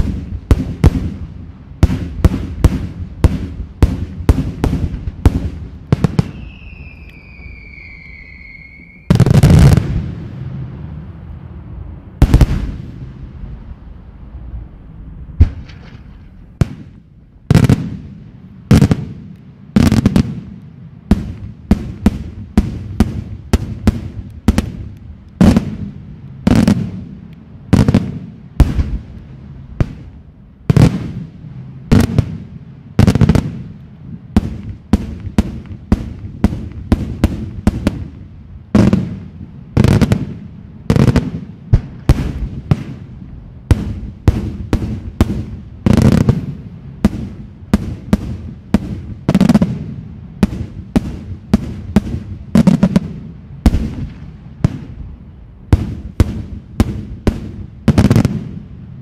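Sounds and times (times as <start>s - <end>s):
fireworks bursting with loud bangs: 0.0s - 10.8s, 12.2s - 13.8s, 15.2s - 58.9s.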